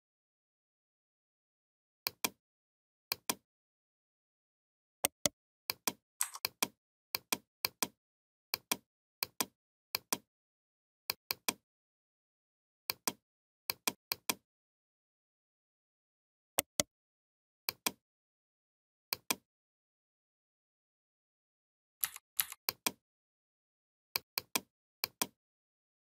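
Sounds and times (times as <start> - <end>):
computer mouse clicking: 5.8 - 6.7, 22.0 - 23.0.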